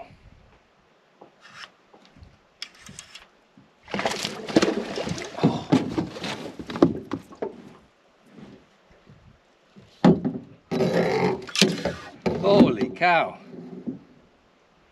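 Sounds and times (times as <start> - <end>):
fish splashing in water: 3.9 - 6.2.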